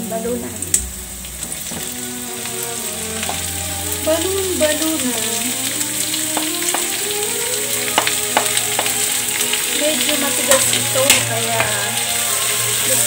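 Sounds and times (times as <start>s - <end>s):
meat sizzling in hot oil: 0.0s - 13.0s
wooden spatula stirring: 6.3s - 7.2s, 7.8s - 11.8s.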